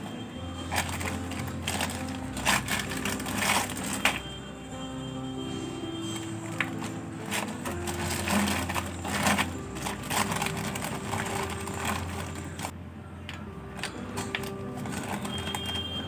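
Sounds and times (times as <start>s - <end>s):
plastic bag crinkling: 0.6s - 4.4s, 6.1s - 12.7s, 13.8s - 16.0s.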